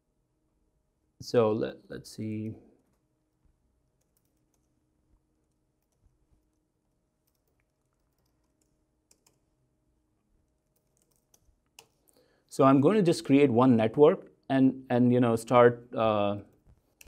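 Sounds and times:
faint keyboard keystrokes: 7.2s - 9.4s, 10.5s - 12.0s.

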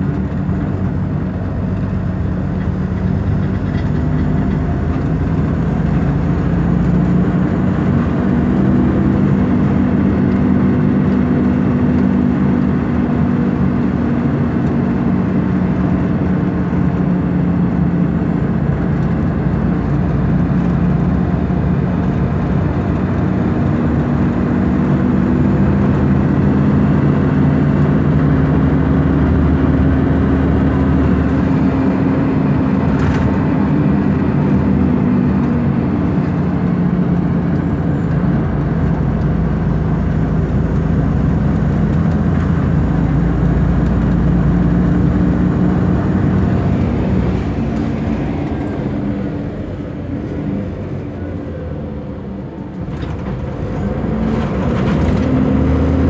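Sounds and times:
bus diesel engine droning: 0.0s - 56.0s
road and tyre noise: 0.0s - 56.0s.

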